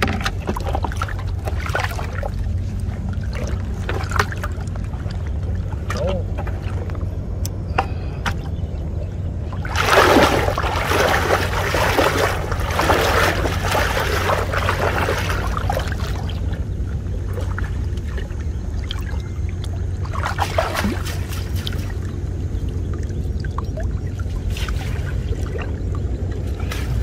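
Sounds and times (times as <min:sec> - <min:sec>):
floodwater splashing and churning: 0:00.0 - 0:27.0
low rumble: 0:00.0 - 0:27.0.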